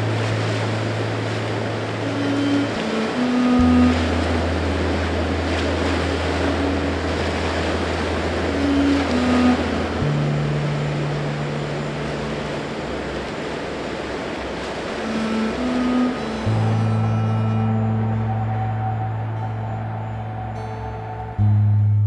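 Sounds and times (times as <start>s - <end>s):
rushing water and surf: 0.0s - 21.6s
low synth drone: 0.0s - 22.0s
short high synth notes: 15.0s - 21.7s.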